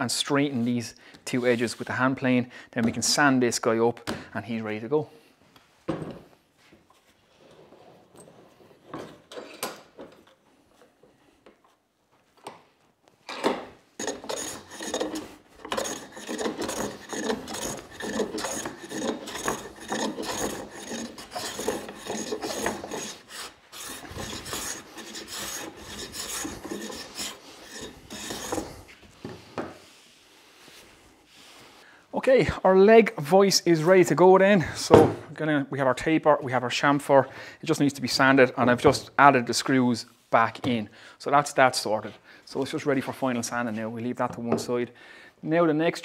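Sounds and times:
hand plane shaving wood: 0:14.0 - 0:29.0.

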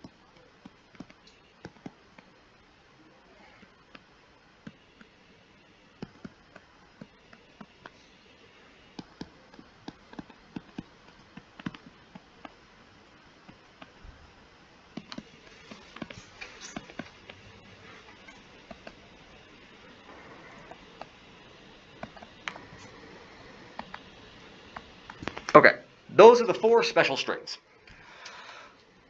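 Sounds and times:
faint steady hiss: 0:00.0 - 0:29.0
stylus tapping on tablet screen: 0:09.0 - 0:12.6.

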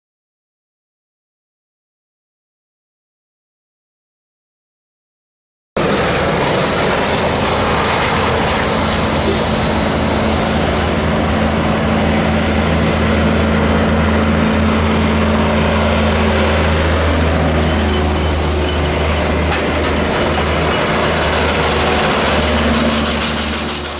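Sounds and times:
jet engines rumbling on runway: 0:05.8 - 0:23.9.

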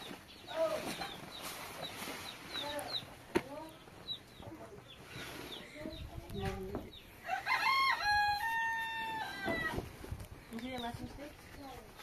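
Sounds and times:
rooster crowing: 0:07.2 - 0:09.8.

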